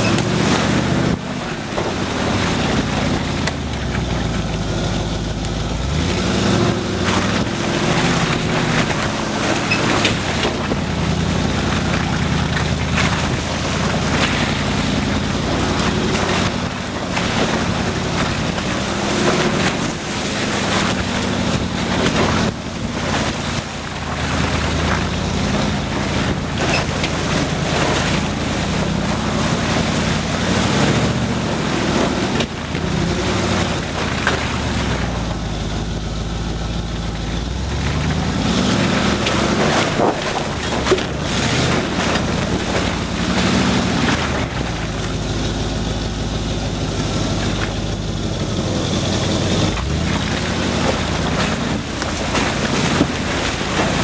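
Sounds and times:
steady rushing noise: 0:00.0 - 0:35.6
off-road vehicle engine at low revs: 0:00.0 - 0:54.0
vehicle knocking over ruts: 0:00.0 - 0:54.0.

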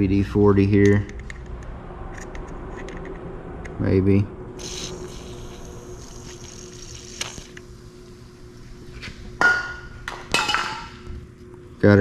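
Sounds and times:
aerosol can spraying: 0:04.6 - 0:07.6.

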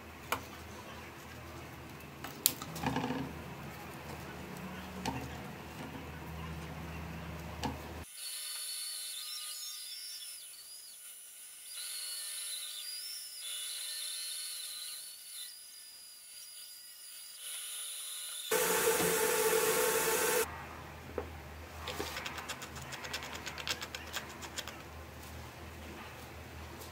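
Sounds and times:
bandsaw cutting wood: 0:18.5 - 0:20.5
loud burst of noise: 0:18.5 - 0:20.5.

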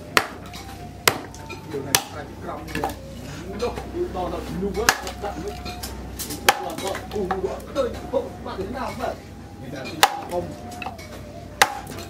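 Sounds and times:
axe chopping wood: 0:00.0 - 0:03.0, 0:04.8 - 0:05.2, 0:06.3 - 0:07.3, 0:10.0 - 0:10.9, 0:11.6 - 0:12.0.

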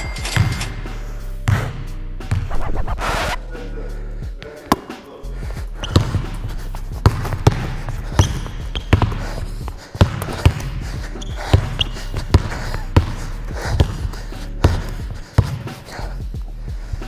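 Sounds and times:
basketball bouncing on wooden floor: 0:05.8 - 0:06.4, 0:07.0 - 0:15.7.

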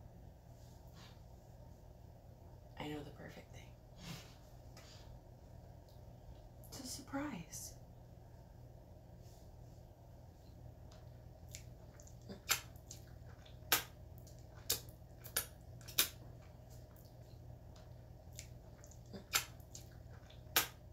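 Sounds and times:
faint low hum: 0:00.0 - 0:20.9
wet mouth clicks and smacks: 0:10.9 - 0:17.2, 0:17.8 - 0:20.8.

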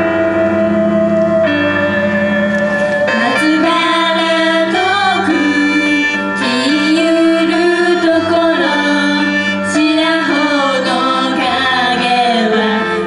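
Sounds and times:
instrumental backing music: 0:00.0 - 0:13.0
girls singing into microphones: 0:02.9 - 0:13.0.

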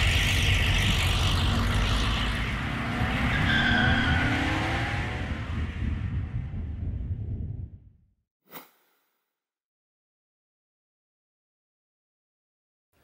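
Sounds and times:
engine revving: 0:00.0 - 0:06.1.

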